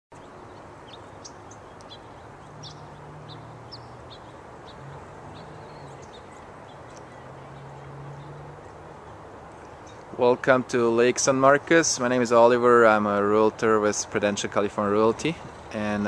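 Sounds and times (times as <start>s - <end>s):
small birds chirping: 0.1s - 10.6s, 13.9s - 16.0s
outdoor background noise: 0.1s - 16.0s.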